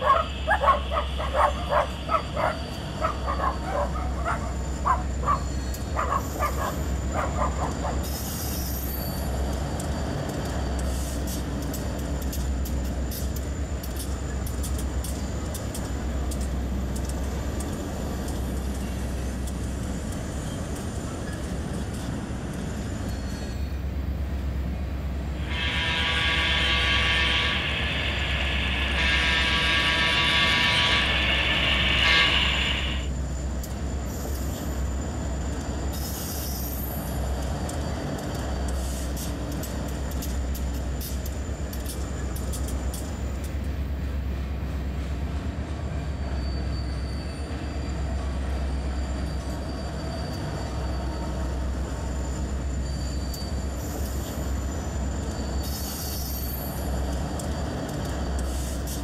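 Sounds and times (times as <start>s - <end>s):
model locomotive horn blasts: 25.4s - 33.1s.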